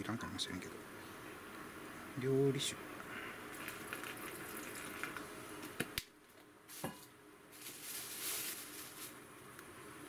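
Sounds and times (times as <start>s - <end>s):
liquid pouring into plastic bag: 3.5s - 5.3s, 7.6s - 9.2s.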